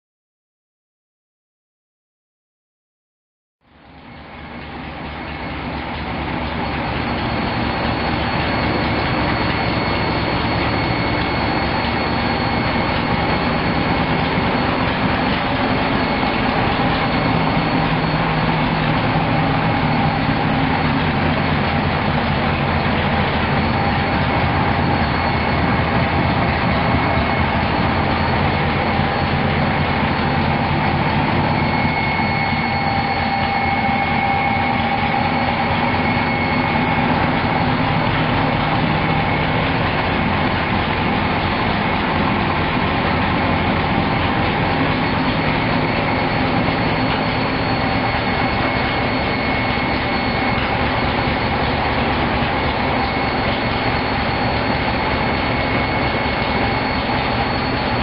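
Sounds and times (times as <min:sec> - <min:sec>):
engine running steadily: 0:03.7 - 0:58.0
steady whine: 0:03.7 - 0:58.0.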